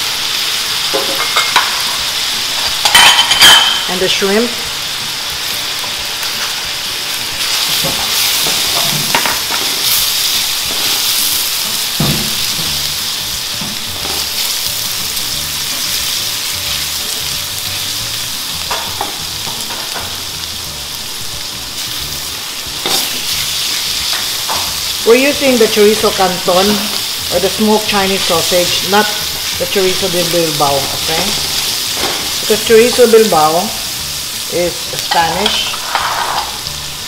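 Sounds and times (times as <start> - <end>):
food sizzling in hot oil: 0.0 - 37.0
spatula scraping wok: 22.0 - 36.6.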